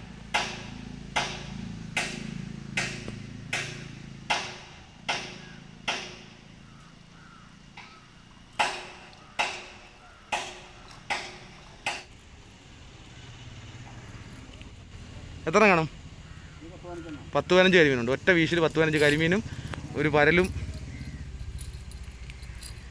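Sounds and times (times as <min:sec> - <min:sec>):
hammer blows ringing: 0:00.3 - 0:06.5, 0:08.6 - 0:12.1.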